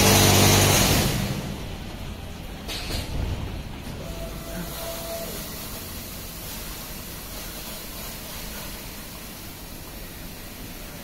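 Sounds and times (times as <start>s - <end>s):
car wash spraying water: 0.0s - 11.0s.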